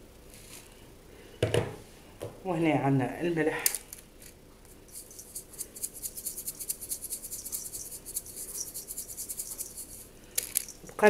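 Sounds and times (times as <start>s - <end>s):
salt shaker rattling: 4.2s - 11.0s.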